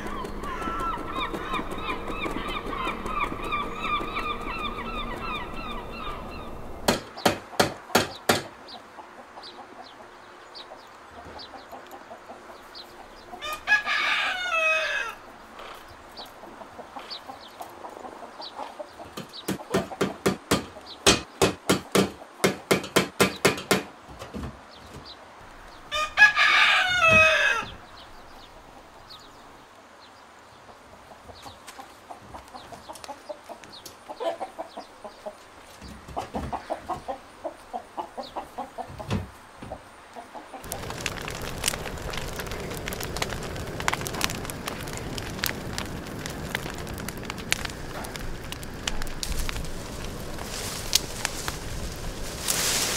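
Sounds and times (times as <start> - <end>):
rooster crowing: 0.0 - 6.8, 13.4 - 15.2, 25.9 - 27.8
geese honking: 0.0 - 6.9
sharp knocks: 6.8 - 8.5.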